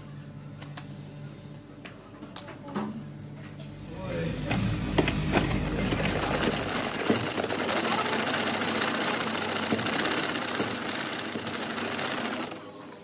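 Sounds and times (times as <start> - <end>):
sewing machine stitching leather: 5.1 - 12.7.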